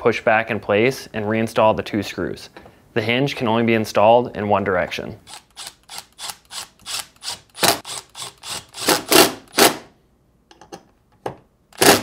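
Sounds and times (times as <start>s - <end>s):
cordless driver driving screws: 5.3s - 9.8s.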